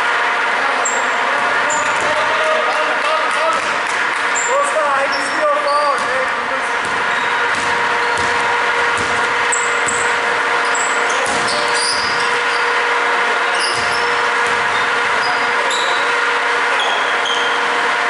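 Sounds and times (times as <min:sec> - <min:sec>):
sneakers squeaking on floor: 0:01.7 - 0:02.2, 0:04.3 - 0:12.8, 0:13.4 - 0:16.2, 0:16.8 - 0:17.7
basketball dribbling: 0:05.8 - 0:12.7, 0:13.6 - 0:15.9.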